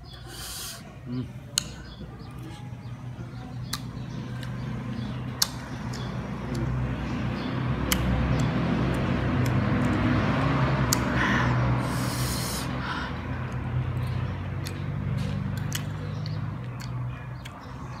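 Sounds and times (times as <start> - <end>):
low mechanical drone: 0.9 - 18.0
chewing lemon slice: 13.4 - 17.6.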